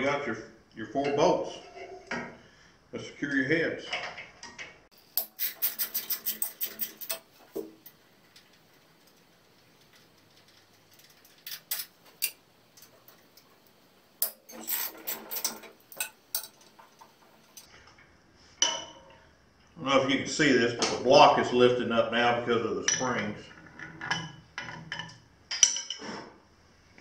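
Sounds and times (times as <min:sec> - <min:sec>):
ratchet wrench clicking: 0:05.1 - 0:07.3.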